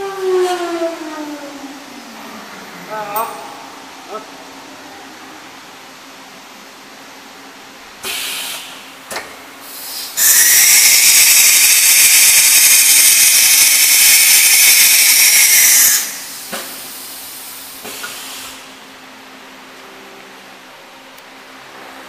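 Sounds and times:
faint machine hum: 0:00.0 - 0:22.0
compressed air hissing: 0:08.0 - 0:08.9, 0:09.6 - 0:18.7.

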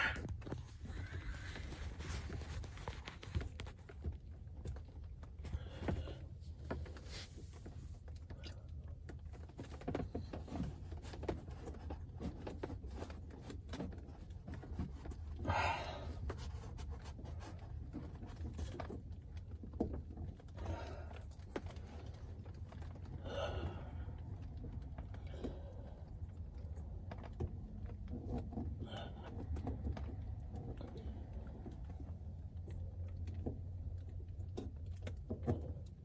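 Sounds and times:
man breathing hard: 0:00.0 - 0:02.0, 0:05.4 - 0:06.4, 0:15.4 - 0:16.4, 0:20.6 - 0:21.5, 0:23.1 - 0:26.2.

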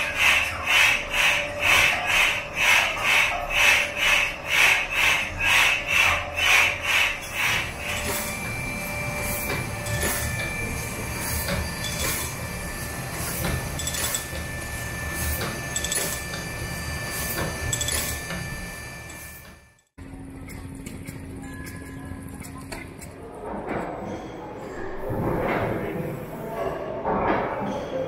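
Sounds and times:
belt-driven machinery swishing: 0:00.0 - 0:19.8.

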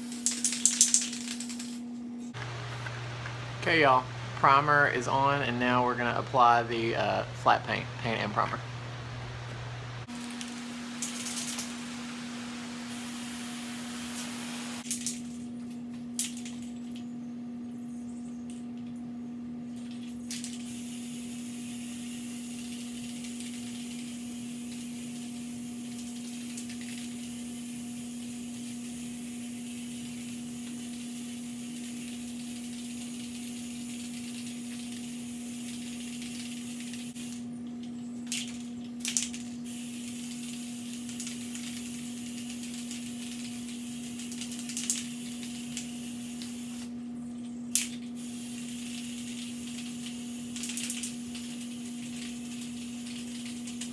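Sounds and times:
steady low hum: 0:00.0 - 0:53.9
aerosol spray can hissing: 0:11.1 - 0:14.8, 0:20.6 - 0:37.4, 0:39.7 - 0:46.9, 0:48.2 - 0:53.9.

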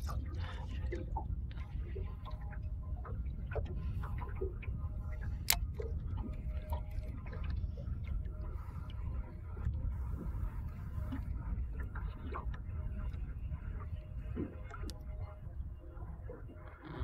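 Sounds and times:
steady low rumble: 0:00.0 - 0:17.0.

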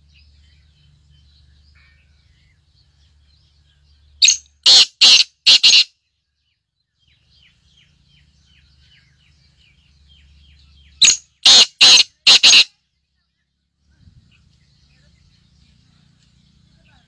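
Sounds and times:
small bird chirps: 0:00.0 - 0:05.9, 0:06.9 - 0:12.7
francolin harsh grating calls: 0:04.2 - 0:05.9, 0:11.0 - 0:12.7.

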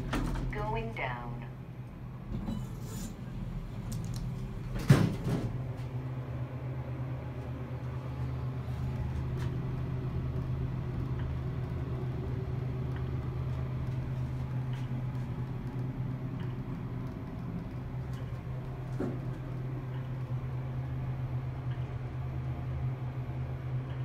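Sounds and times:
elevator car humming: 0:00.0 - 0:24.0
elevator doors clunk closing: 0:04.6 - 0:06.0.

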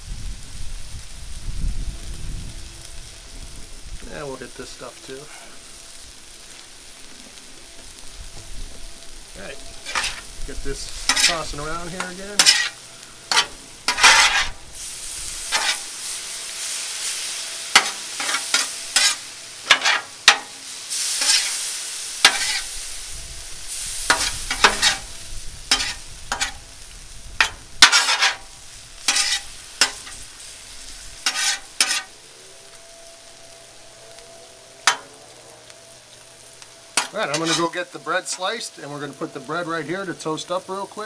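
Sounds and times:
steak sizzling on a griddle: 0:00.0 - 0:41.0
metal spatula scraping a griddle: 0:09.5 - 0:23.1, 0:23.7 - 0:26.8, 0:27.4 - 0:32.2, 0:34.8 - 0:35.2, 0:36.9 - 0:39.2.

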